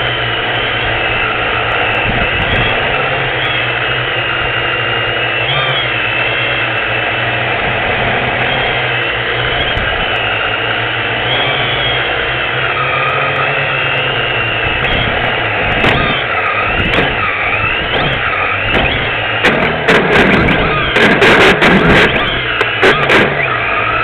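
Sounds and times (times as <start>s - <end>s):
drone propellers buzzing: 0.0s - 24.0s
sharp knocks: 15.7s - 16.2s, 16.8s - 23.5s.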